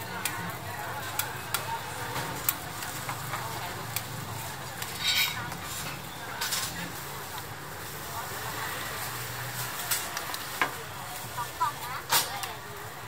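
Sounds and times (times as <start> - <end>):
street background noise: 0.0 - 13.0
metal spatula scraping a griddle: 4.8 - 5.9.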